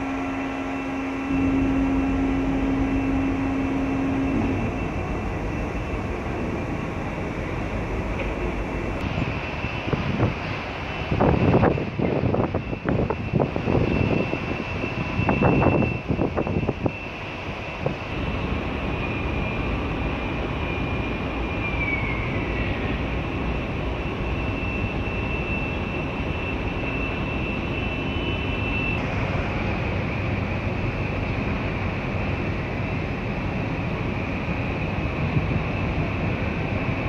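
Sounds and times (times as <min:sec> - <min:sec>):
high tone: 0:00.0 - 0:07.8
high-pitched whine: 0:00.0 - 0:37.0
machinery low rumble: 0:00.0 - 0:37.0.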